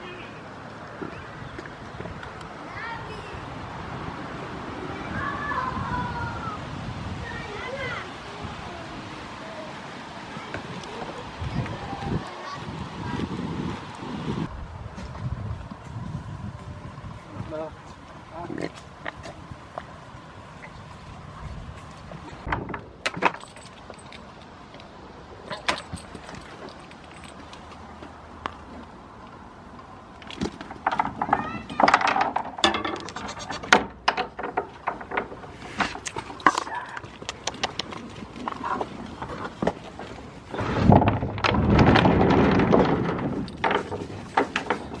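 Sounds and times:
sharp knocks and clatter: 22.4 - 24.0, 30.2 - 38.6, 39.2 - 45.0
chain and padlock rattling: 23.2 - 24.5, 25.5 - 27.7, 31.8 - 35.2
microphone handling rumble: 40.5 - 44.3.

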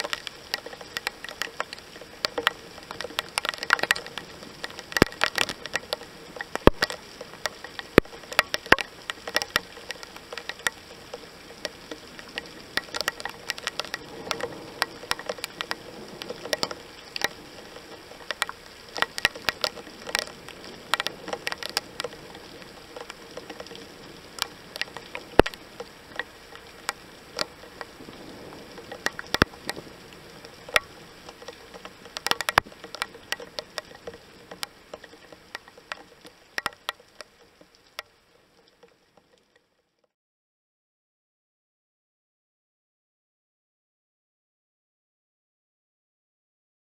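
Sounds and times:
heavy rain hissing: 0.0 - 35.6
sharp taps of raindrops: 0.0 - 40.1.

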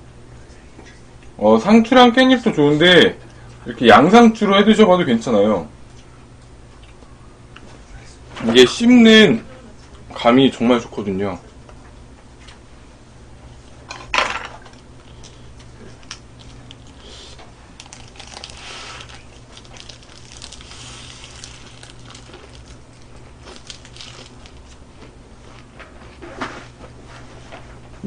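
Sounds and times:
steady low hum: 0.0 - 28.0
crunchy chewing of lettuce: 15.0 - 25.7.

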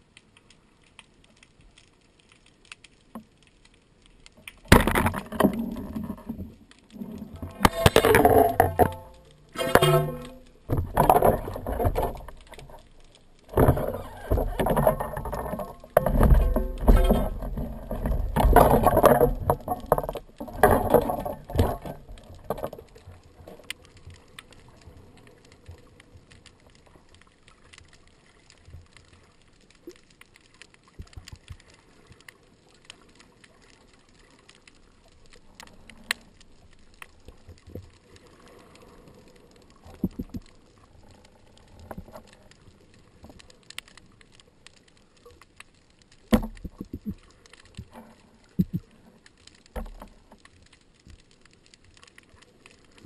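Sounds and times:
faint underwater clicks: 0.0 - 53.0
water churning and splashing: 4.6 - 53.0.

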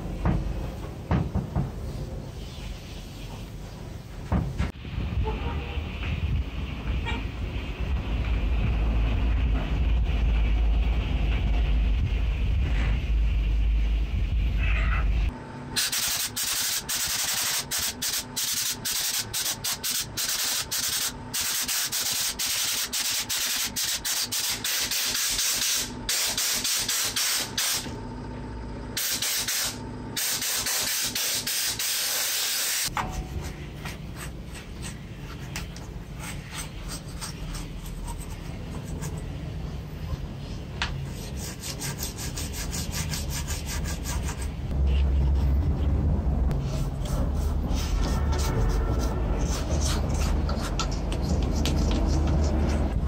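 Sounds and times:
hissing spray jet: 29.0 - 32.9
toothbrush scrubbing a board: 33.4 - 39.4, 41.1 - 44.6, 46.6 - 53.0.

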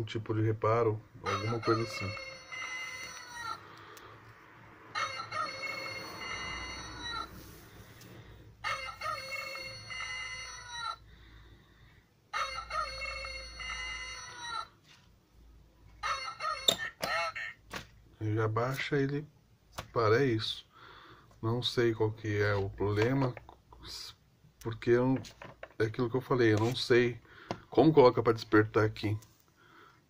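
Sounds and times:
electronic rooster crow alarm: 1.2 - 3.7, 4.9 - 7.5, 8.6 - 11.0, 12.3 - 14.7, 16.0 - 17.5.

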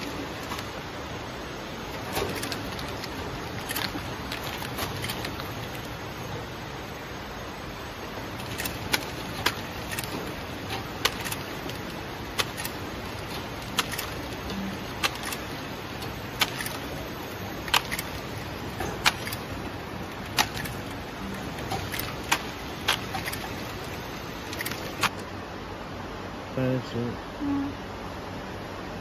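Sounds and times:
packing machine clicks: 0.0 - 0.8, 1.8 - 6.0, 8.3 - 25.2
packing machine hum: 0.0 - 25.3.

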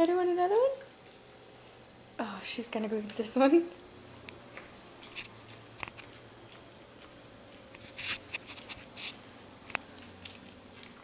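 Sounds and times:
dog licking and smacking lips: 4.3 - 11.0.

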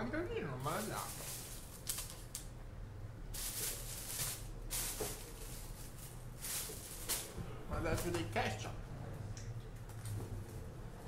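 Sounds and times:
close rustling and handling: 0.6 - 2.4, 3.3 - 8.6.

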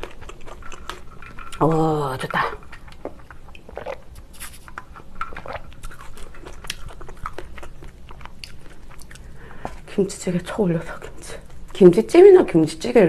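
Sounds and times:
woman chewing: 0.0 - 9.9.

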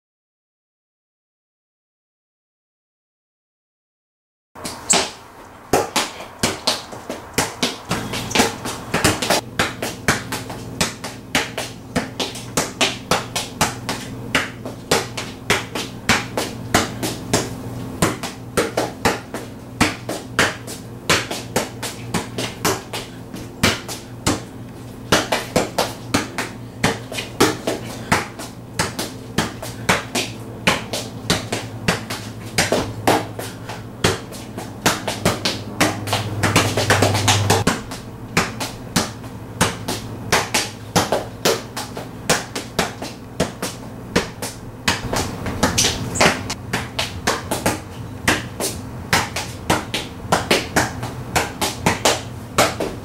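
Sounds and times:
ball bouncing on concrete: 4.6 - 53.0
steady low hum: 4.6 - 53.0.

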